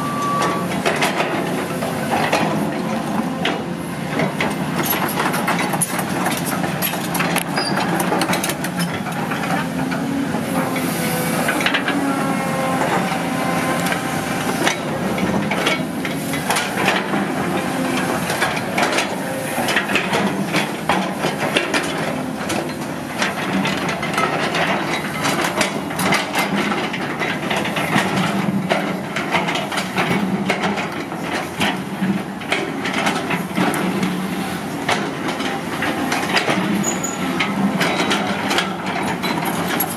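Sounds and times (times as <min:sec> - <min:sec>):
excavator diesel engine: 0:00.0 - 0:39.9
hydraulic whine: 0:07.4 - 0:23.1.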